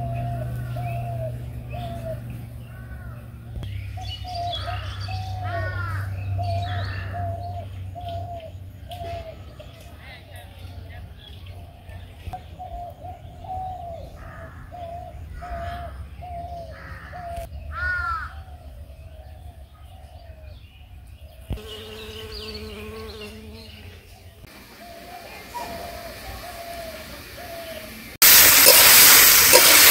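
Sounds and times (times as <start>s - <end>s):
crow cawing: 4.6s - 7.3s, 16.8s - 18.4s
insect buzzing: 21.5s - 29.9s.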